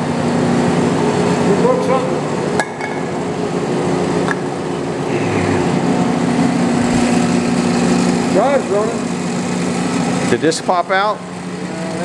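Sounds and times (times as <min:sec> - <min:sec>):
lathe motor humming: 0:05.1 - 0:10.4.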